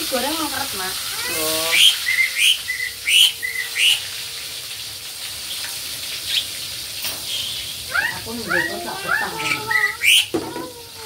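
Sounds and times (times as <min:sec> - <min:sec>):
fish sizzling in hot oil: 0:00.0 - 0:11.0
bird chirping: 0:01.7 - 0:04.1.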